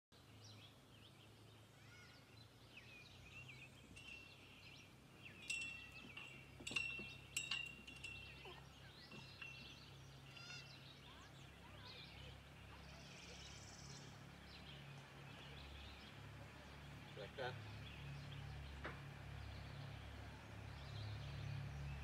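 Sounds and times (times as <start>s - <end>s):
songbirds chirping: 0.1s - 22.0s
ringing metallic clinks: 3.8s - 10.7s.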